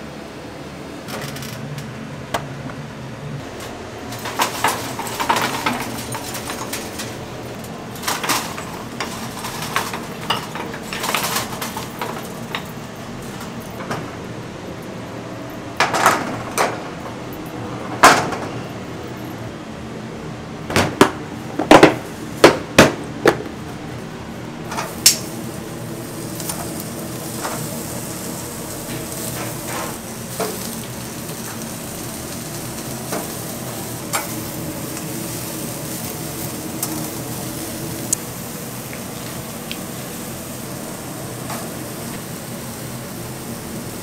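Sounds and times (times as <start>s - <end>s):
steady low hum: 0.0s - 44.0s
steel grill grate clanking: 3.5s - 14.2s.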